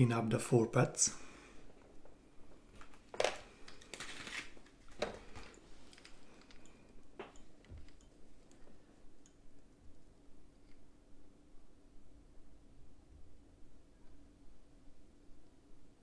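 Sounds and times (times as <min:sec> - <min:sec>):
faint steady hum: 0:00.0 - 0:16.0
small tools clicking and tapping: 0:03.1 - 0:09.4.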